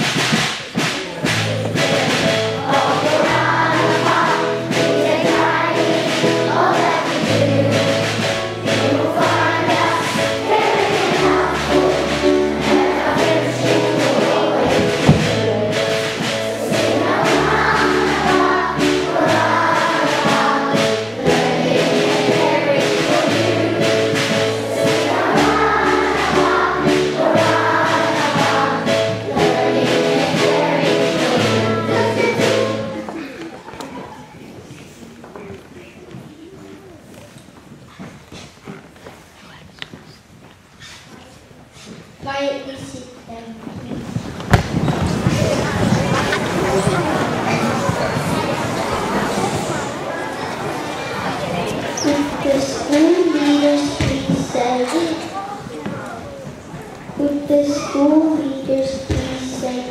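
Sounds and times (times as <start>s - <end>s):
instrumental accompaniment low notes: 0.0s - 33.3s
children singing in unison: 1.2s - 33.5s, 45.0s - 55.5s.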